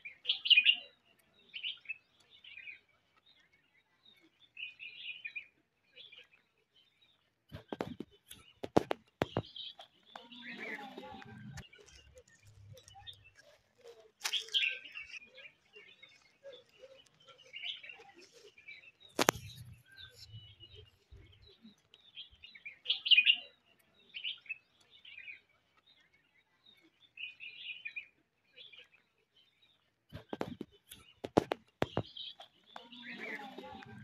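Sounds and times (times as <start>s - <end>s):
birds chirping: 0.0s - 34.0s
sharp click: 19.2s - 19.7s.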